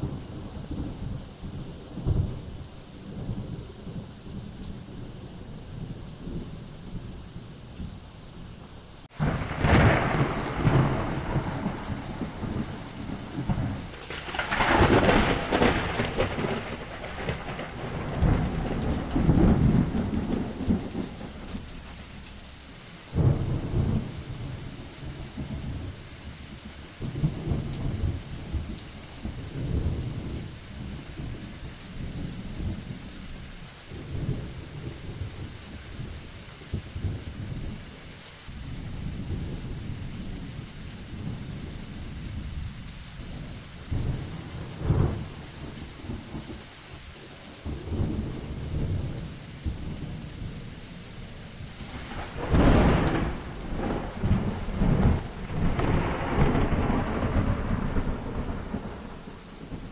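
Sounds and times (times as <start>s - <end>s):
steady rain: 0.0s - 59.9s
thunder rolling: 9.1s - 26.0s, 38.6s - 46.6s, 51.6s - 59.9s.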